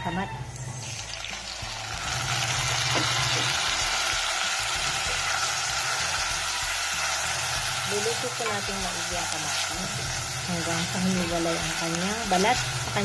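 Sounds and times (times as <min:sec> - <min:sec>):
tomatoes sizzling in hot oil: 0:00.5 - 0:13.0.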